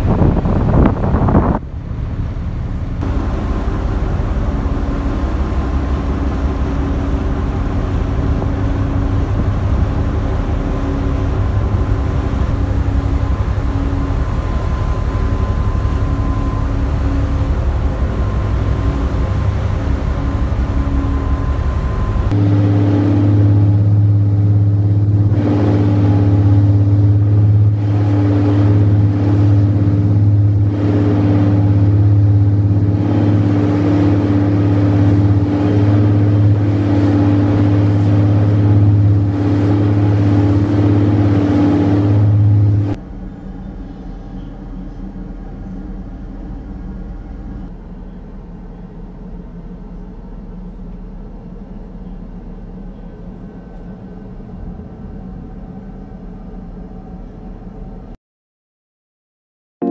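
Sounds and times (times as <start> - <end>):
rushing wind: 0.0 - 43.6
sea noise: 0.0 - 58.0
ferry engines droning: 0.0 - 58.2.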